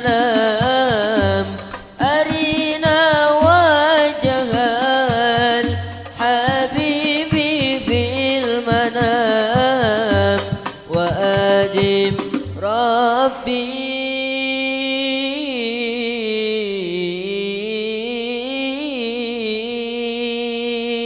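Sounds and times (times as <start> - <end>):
frame drums struck in rhythm: 0.0 - 12.9
men singing: 0.0 - 14.1.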